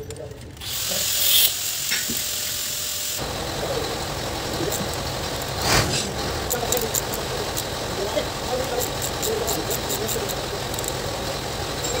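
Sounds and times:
ratchet clicks: 0:00.0 - 0:03.0, 0:06.4 - 0:12.0
low mechanical rumble: 0:03.2 - 0:12.0.

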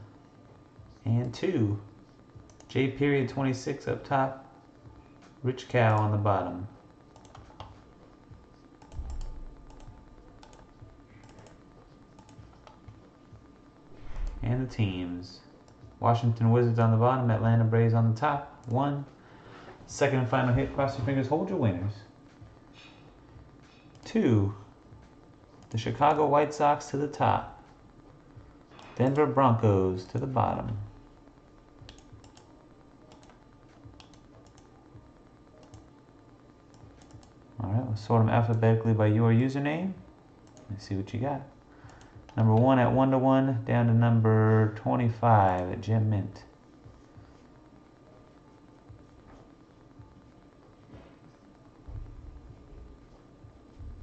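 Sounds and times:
computer keyboard clicks: 0:07.2 - 0:07.8, 0:08.8 - 0:11.6
dull low thump: 0:51.9 - 0:52.7.

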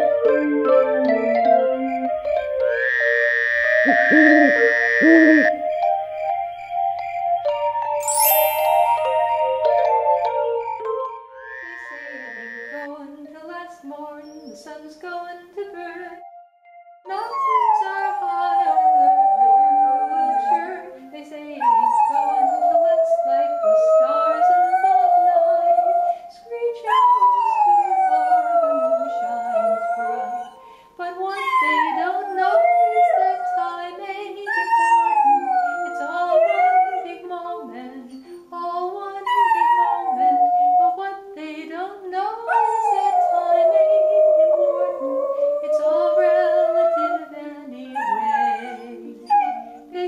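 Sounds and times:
low melody: 0:00.0 - 0:12.6
dog howling: 0:02.8 - 0:05.5, 0:17.1 - 0:20.8, 0:26.9 - 0:30.6, 0:31.3 - 0:33.9, 0:34.5 - 0:37.2, 0:39.2 - 0:41.0, 0:42.4 - 0:50.0.

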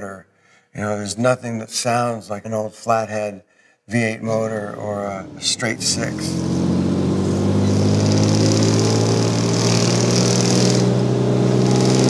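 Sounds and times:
car engine running: 0:04.8 - 0:12.0.

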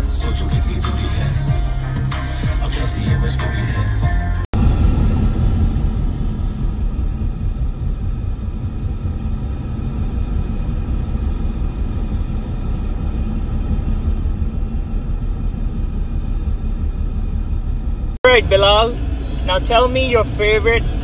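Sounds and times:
car engine and tyre noise inside cabin: 0:04.4 - 0:21.0.

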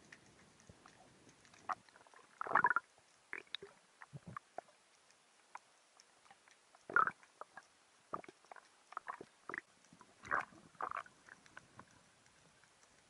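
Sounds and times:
underwater clicks and knocks: 0:03.4 - 0:04.7.

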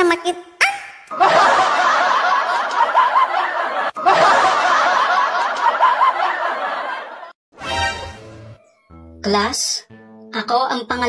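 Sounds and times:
canned audience laughter: 0:01.1 - 0:07.4.

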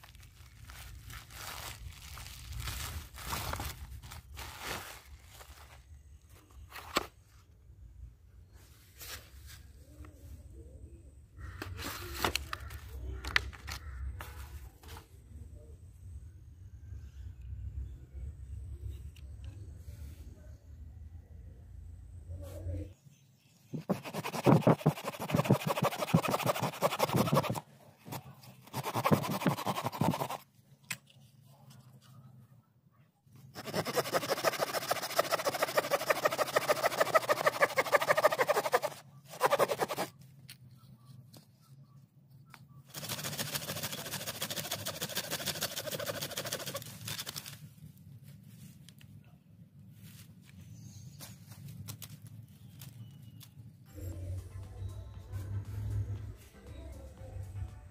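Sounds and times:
plastic packaging crinkling: 0:00.0 - 0:05.8
hand saw cutting wood: 0:23.8 - 0:27.6, 0:28.7 - 0:30.4, 0:33.6 - 0:40.1, 0:43.0 - 0:46.8.

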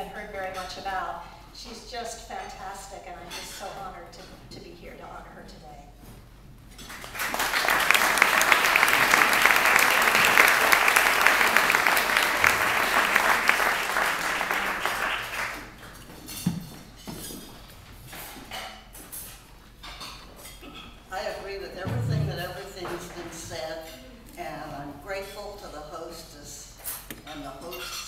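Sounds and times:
audience applauding: 0:06.9 - 0:15.8.

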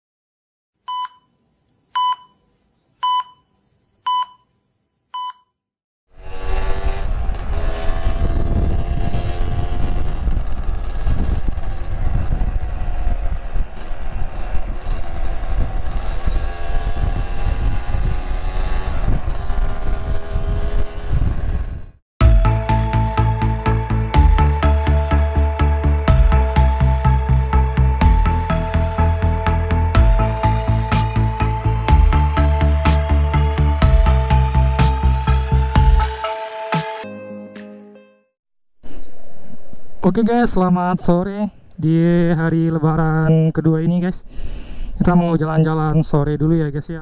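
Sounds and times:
short countdown beeps: 0:02.0 - 0:02.4, 0:03.0 - 0:03.5, 0:04.1 - 0:04.5, 0:05.2 - 0:05.5
two-stroke motorcycle engine: 0:06.2 - 0:21.7
wind rush over microphone: 0:06.7 - 0:22.0.

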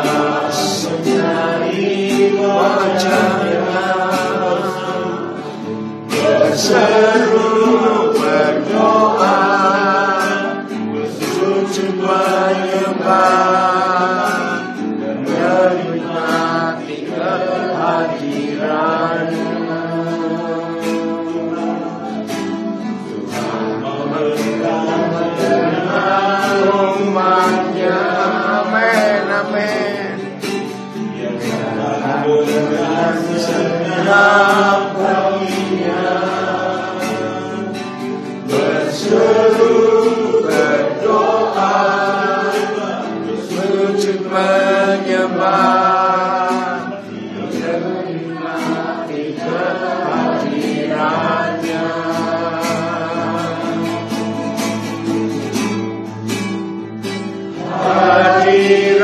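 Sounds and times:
congregation singing: 0:00.0 - 0:59.0
instrumental accompaniment: 0:00.0 - 0:59.0.

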